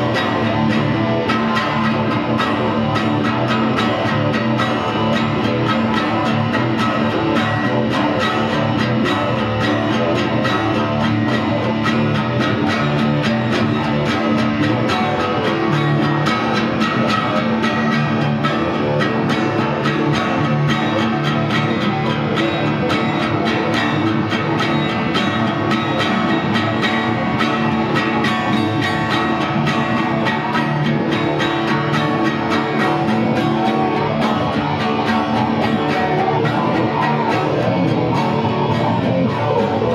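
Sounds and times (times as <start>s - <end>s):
acoustic guitar strumming: 0.0s - 39.9s
electric guitar playing: 0.0s - 39.9s.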